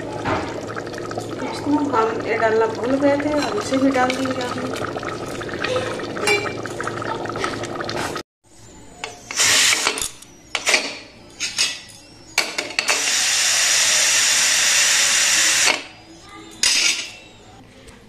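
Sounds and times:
pressure cooker whistling: 0:09.0 - 0:11.0, 0:12.8 - 0:16.1.

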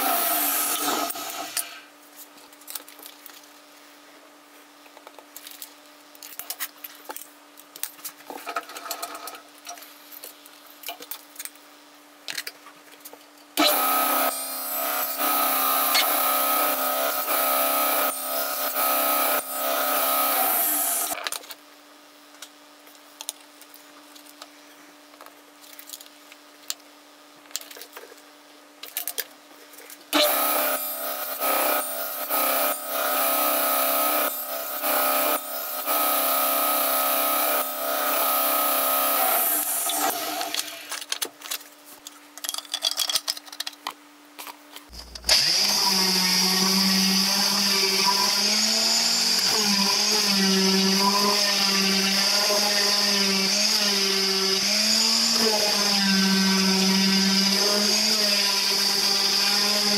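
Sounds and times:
table saw cutting wood: 0:00.0 - 0:01.8, 0:13.6 - 0:21.2, 0:30.2 - 0:40.9, 0:45.2 - 0:59.9.

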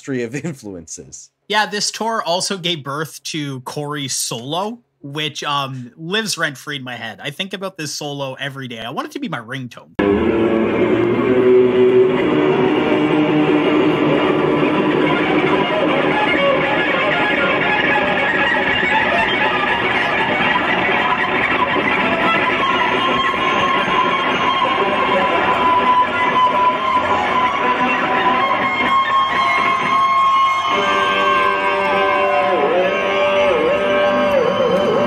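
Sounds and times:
electric guitar solo: 0:10.0 - 0:35.0
rock band playing live: 0:10.0 - 0:35.0.

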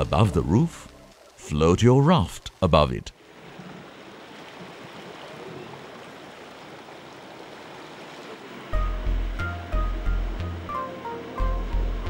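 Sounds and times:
bicycle wheels splashing through water: 0:03.2 - 0:08.6.

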